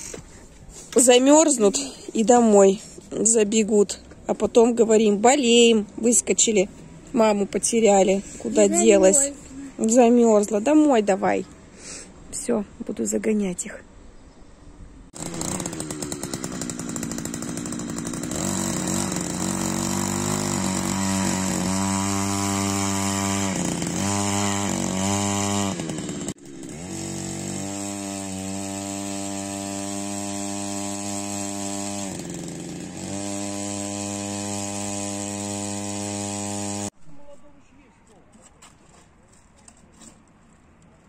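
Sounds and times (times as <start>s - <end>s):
power tool engine revving: 15.2s - 37.0s.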